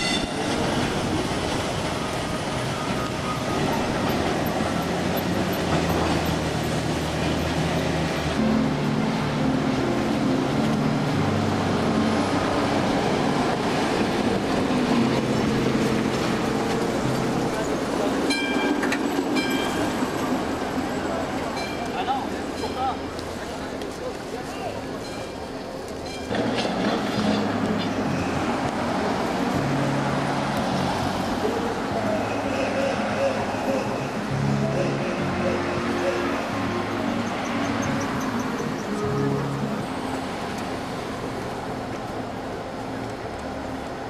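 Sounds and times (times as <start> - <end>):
cars passing close by: 0.0 - 44.0
streetcar motor hum: 0.0 - 44.0
wheels rumbling on rails: 0.0 - 44.0.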